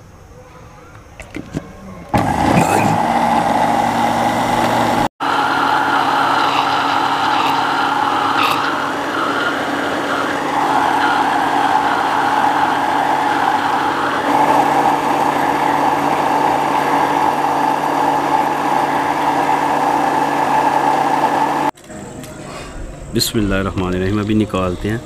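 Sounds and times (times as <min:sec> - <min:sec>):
electric blender running: 0:02.1 - 0:21.8.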